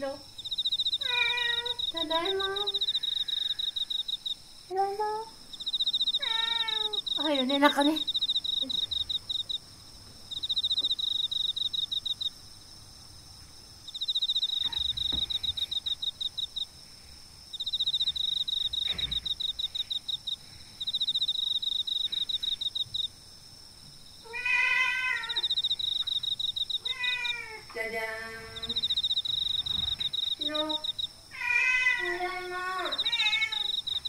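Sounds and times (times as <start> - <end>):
high rapid trilling chirp: 0.4 - 4.4, 5.5 - 9.6, 10.3 - 12.3, 13.9 - 16.7
cat meowing: 1.0 - 2.8, 6.2 - 7.1, 24.2 - 25.6, 26.8 - 27.7, 31.3 - 33.8
soft low thumps: 14.5 - 15.9.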